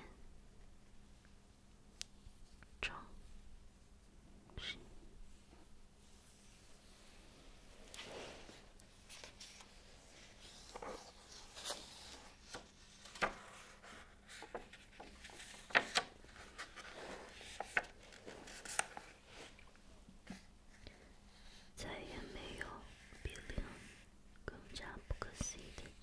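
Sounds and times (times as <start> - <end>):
book pages turning: 7.8 - 19.7.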